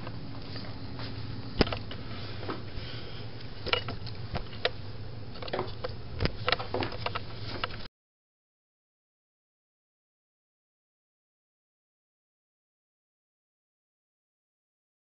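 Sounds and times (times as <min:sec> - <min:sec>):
steady low hum: 0:00.0 - 0:07.9.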